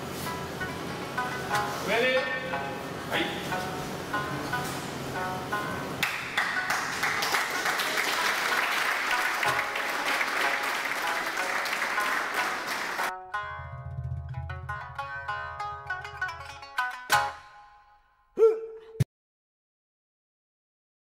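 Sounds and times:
plucked-string music: 0:00.0 - 0:18.2
crowd applauding: 0:06.0 - 0:13.1.

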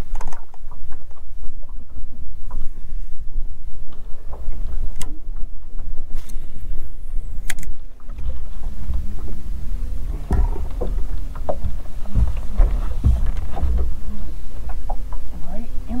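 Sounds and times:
faint steady hum: 0:00.0 - 0:16.0
water lapping at hull: 0:00.0 - 0:16.0
wind buffeting microphone: 0:01.6 - 0:16.0
knocks: 0:09.9 - 0:14.0.

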